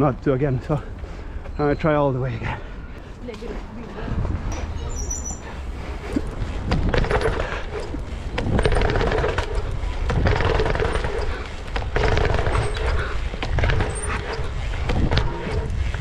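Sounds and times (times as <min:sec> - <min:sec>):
wind rumbling on microphone: 0:03.4 - 0:16.0
bike tyres thudding on steps: 0:06.2 - 0:16.0.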